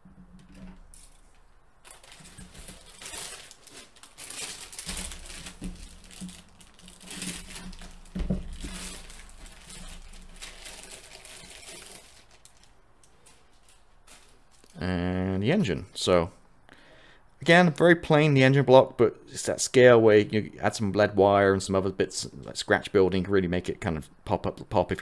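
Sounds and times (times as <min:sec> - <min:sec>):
plastic bag crinkling: 0:00.8 - 0:14.8.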